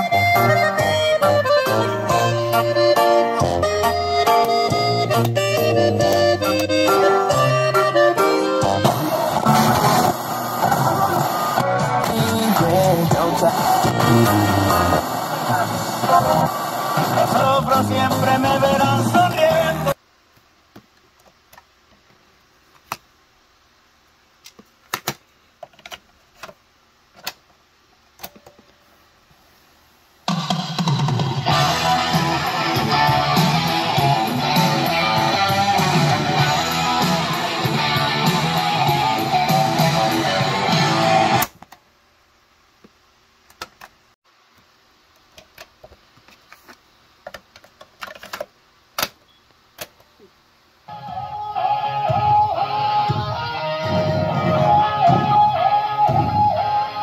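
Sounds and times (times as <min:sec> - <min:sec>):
guitar music from speakers: 0:00.0 - 0:19.9, 0:31.4 - 0:41.4, 0:50.9 - 0:57.0.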